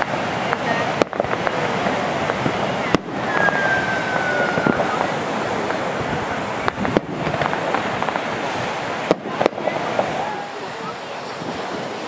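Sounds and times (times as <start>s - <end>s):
firework pops and crackles: 0.0s - 10.4s
firework bangs: 0.0s - 10.5s
firework whistle: 2.7s - 5.2s.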